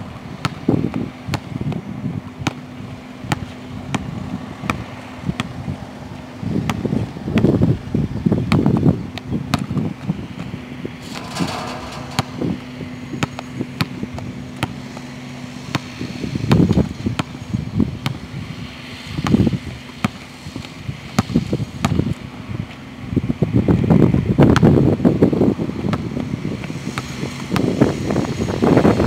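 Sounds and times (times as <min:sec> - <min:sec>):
wind buffeting microphone: 0:00.0 - 0:14.6, 0:20.9 - 0:29.0
basketball bouncing on hard court: 0:08.5 - 0:09.8, 0:11.1 - 0:14.0.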